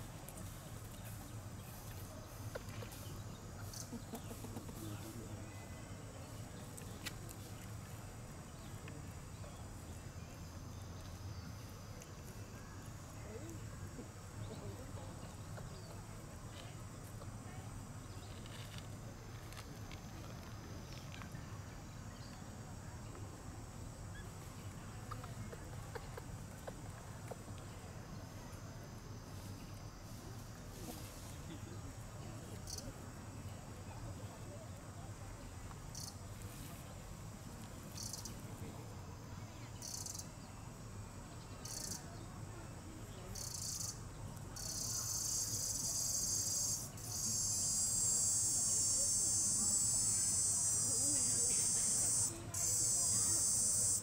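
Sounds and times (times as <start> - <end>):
small clicks and rustles: 18.2 - 21.4
insects buzzing: 32.5 - 33.9, 34.5 - 54.0.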